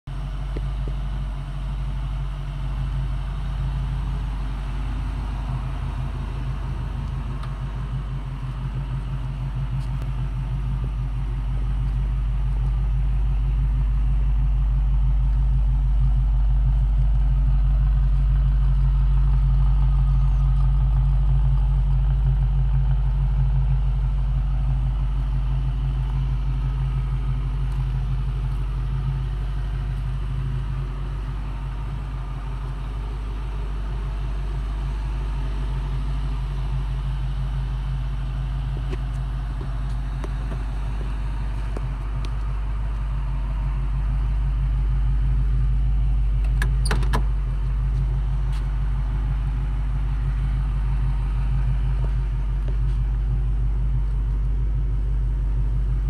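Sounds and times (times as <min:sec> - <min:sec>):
car engine idling: 0:00.1 - 0:56.0.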